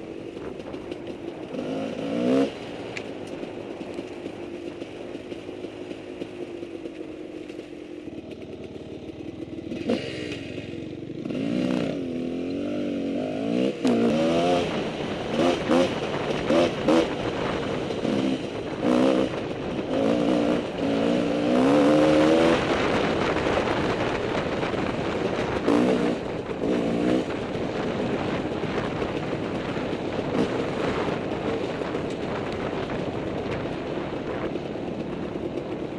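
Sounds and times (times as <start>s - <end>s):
dirt bike engine revving: 1.5s - 2.6s, 8.2s - 17.3s, 18.0s - 23.1s.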